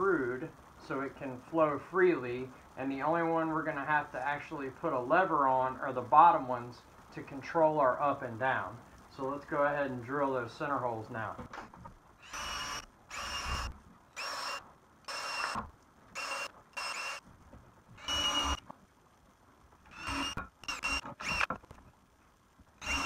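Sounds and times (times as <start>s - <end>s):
cordless drill motor whining: 12.2s - 17.2s, 18.0s - 18.6s, 19.9s - 21.6s, 22.8s - 23.0s.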